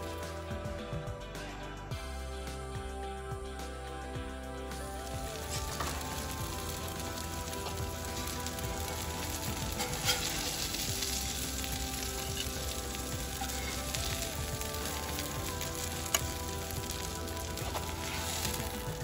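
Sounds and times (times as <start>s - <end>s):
fish sizzling in hot oil: 4.8s - 19.0s.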